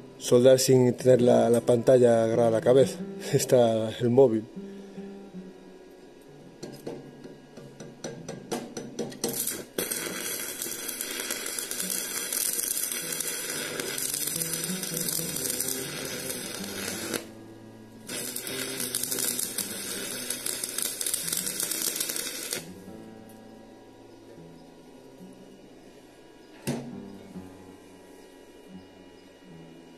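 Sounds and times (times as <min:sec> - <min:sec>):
welding rod striking arc: 0:07.8 - 0:17.4, 0:18.0 - 0:22.8
welding arc crackling sizzle: 0:09.1 - 0:22.9.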